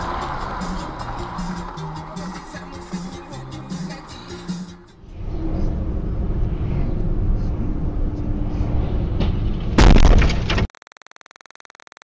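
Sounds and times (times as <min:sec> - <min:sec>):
car road and engine noise: 0:00.0 - 0:10.6
crash with glass breaking: 0:09.8 - 0:10.7.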